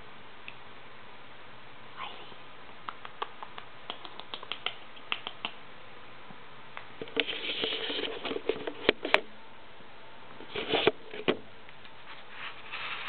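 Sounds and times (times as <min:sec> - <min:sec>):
camera rustling on floor: 0:07.0 - 0:09.2, 0:11.9 - 0:13.0.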